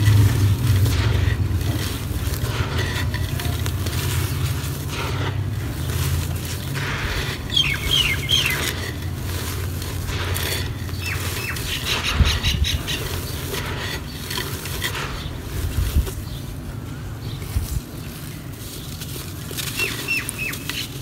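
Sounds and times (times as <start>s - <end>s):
falling grains patter: 0.0s - 16.4s
soil crumbling between hands: 0.0s - 21.0s
soil crunch: 0.0s - 21.0s.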